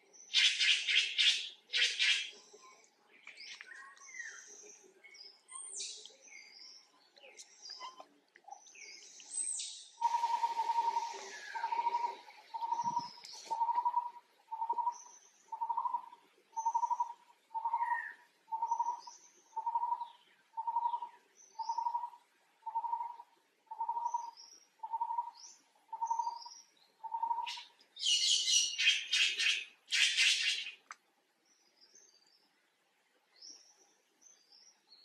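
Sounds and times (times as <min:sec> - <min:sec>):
faint high bird chirps: 0:00.2 - 0:30.8.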